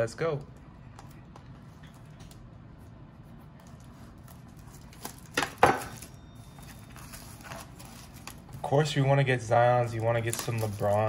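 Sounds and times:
plastic wrap crinkling: 3.7 - 9.0, 9.8 - 11.0
knife scratching plastic wrap: 10.0 - 11.0.

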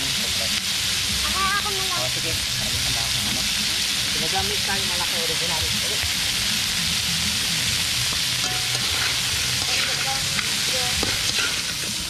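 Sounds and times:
crabs sizzling in hot oil: 0.0 - 12.0.

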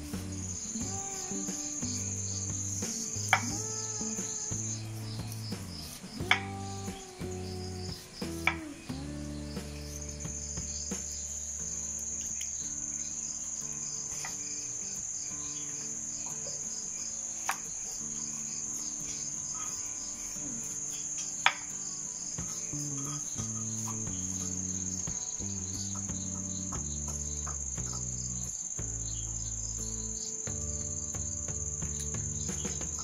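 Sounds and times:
insect trilling: 0.0 - 33.0
soft background music: 0.0 - 33.0.

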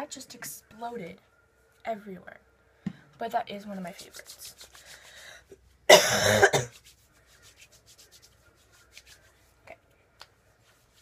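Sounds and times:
hands rubbing lotion on skin: 3.8 - 5.3, 6.7 - 9.6, 10.2 - 11.0.

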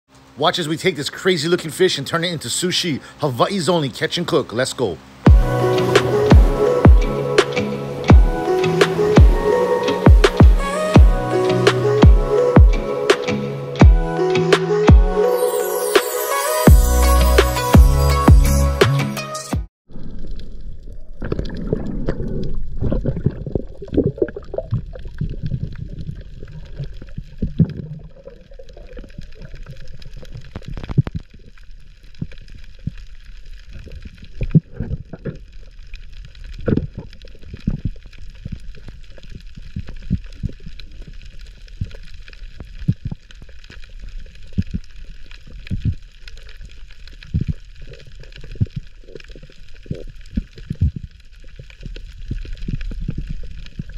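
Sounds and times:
underwater gurgling and sloshing: 19.9 - 53.9.

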